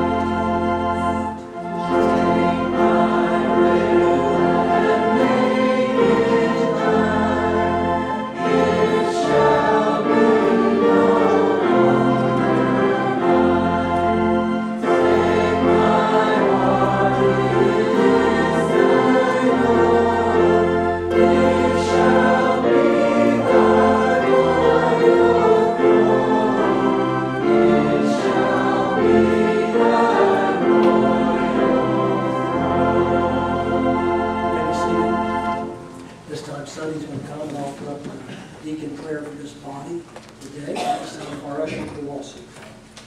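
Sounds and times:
congregation singing a hymn: 0.0s - 40.0s.

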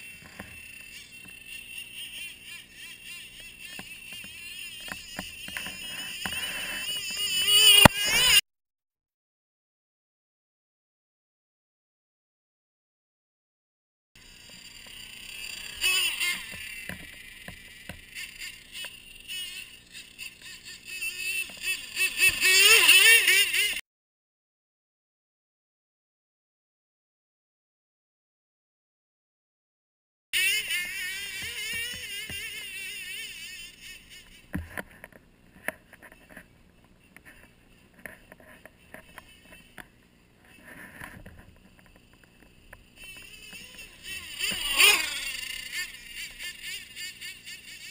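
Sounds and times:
model snowmobile motor whining: 0.0s - 8.4s, 14.2s - 23.8s, 30.4s - 47.9s.

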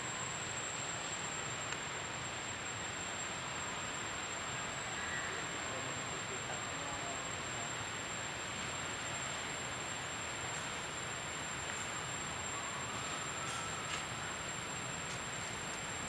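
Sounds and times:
outdoor background hiss: 0.0s - 16.0s
thin high whine: 0.0s - 16.0s.

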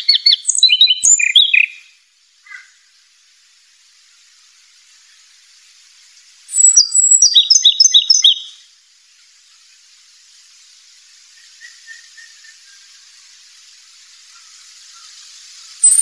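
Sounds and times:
songbird chirping: 0.0s - 3.2s, 3.8s - 16.0s
steady hiss: 0.0s - 16.0s.

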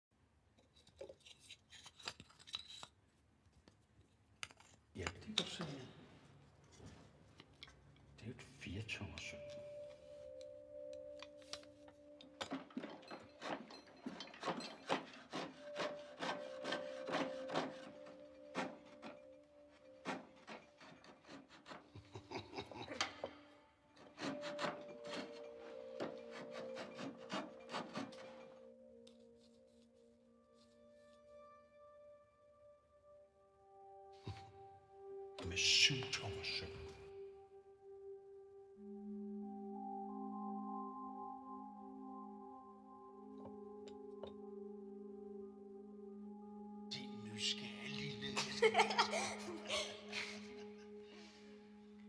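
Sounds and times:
hands handling glass vial: 0.6s - 3.0s, 4.4s - 5.7s
faint held musical tones: 4.9s - 52.0s
hand tool rasping wood: 12.4s - 23.4s, 24.0s - 28.7s.

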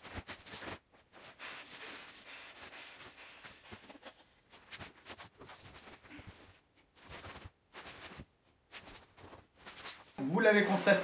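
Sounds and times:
nylon fabric rustling: 0.0s - 1.4s, 3.7s - 11.0s.

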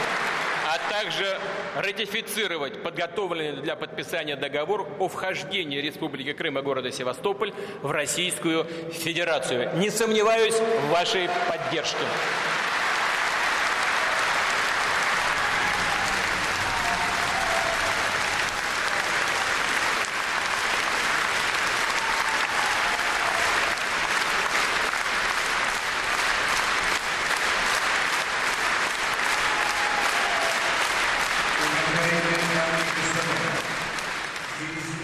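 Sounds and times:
audience applauding: 0.0s - 1.8s, 10.9s - 35.0s.

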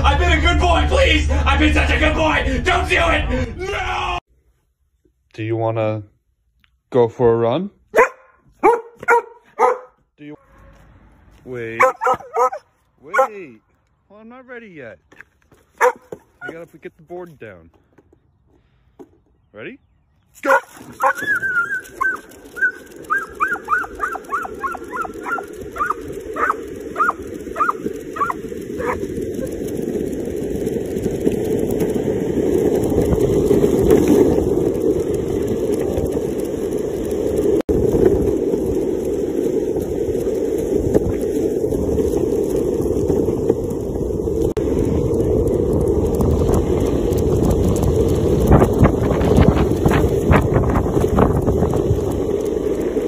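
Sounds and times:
skateboard wheels rolling on asphalt: 7.1s - 53.0s
dog yipping: 7.9s - 10.0s, 11.8s - 13.3s, 15.8s - 16.2s, 20.5s - 29.0s
wind on microphone: 20.8s - 53.0s.

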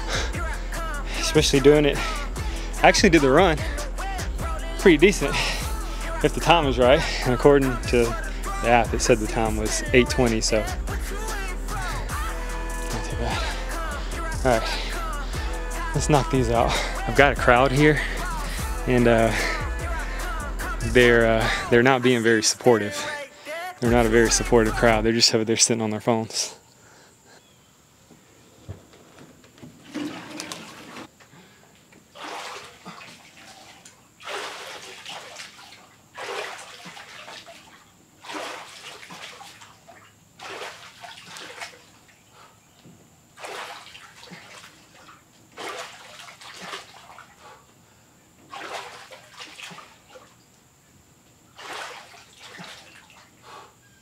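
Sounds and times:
water sloshing and splashing: 29.6s - 31.2s, 31.8s - 42.5s, 43.3s - 47.7s, 48.4s - 50.7s, 51.5s - 53.7s.

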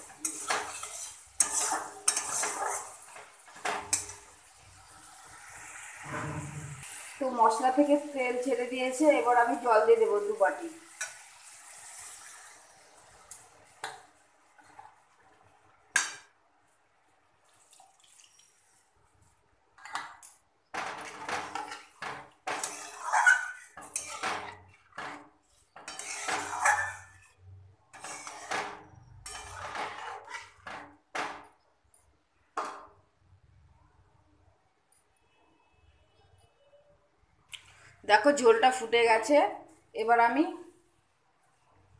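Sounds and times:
metal spatula scraping a pan: 0.0s - 7.6s, 20.8s - 31.0s
water hissing on hot pan: 0.0s - 15.2s.

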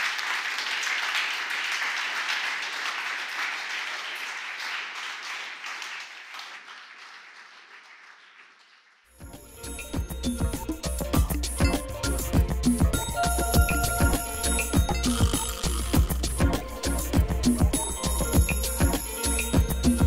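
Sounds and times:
audience applause: 0.0s - 9.1s
music: 9.1s - 20.0s.

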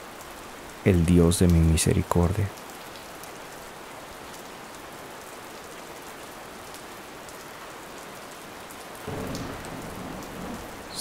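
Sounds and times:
steady rain falling: 0.0s - 11.0s
rain drop ticks: 0.9s - 3.6s, 8.7s - 11.0s.

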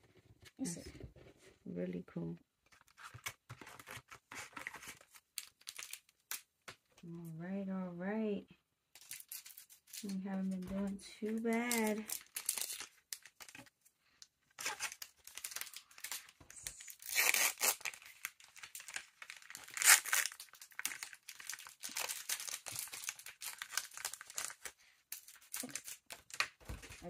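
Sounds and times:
wrapper crinkling: 4.4s - 6.5s, 9.0s - 13.7s, 14.5s - 27.0s
loud sharp wrapper rip: 14.6s - 24.6s.

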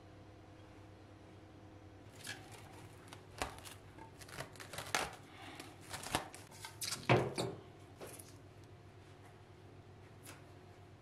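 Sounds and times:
cling film crinkling: 2.1s - 7.1s.

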